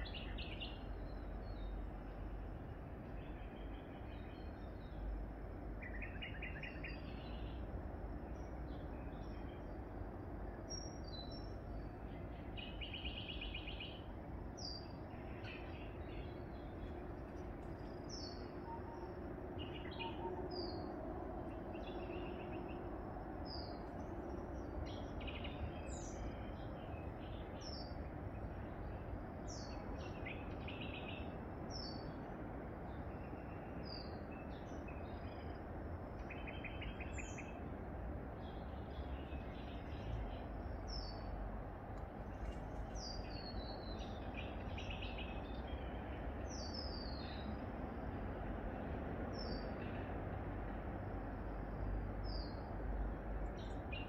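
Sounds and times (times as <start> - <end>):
low background rumble: 0.0 - 54.0
small birds chirping: 42.2 - 47.6.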